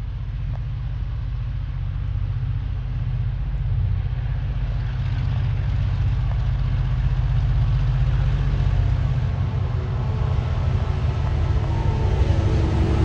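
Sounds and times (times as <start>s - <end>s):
diesel locomotive engine drone: 0.0s - 13.0s
train rolling noise hiss: 7.6s - 13.0s.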